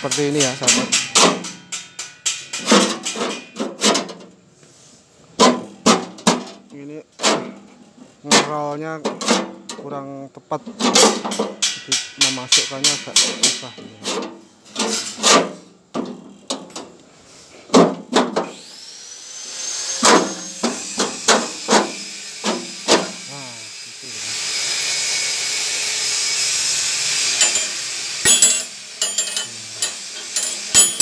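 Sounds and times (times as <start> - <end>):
metal screen scraping sheet metal: 0.0 - 4.2, 10.6 - 17.6, 24.4 - 31.0
steady hiss: 9.7 - 15.3, 26.4 - 31.0.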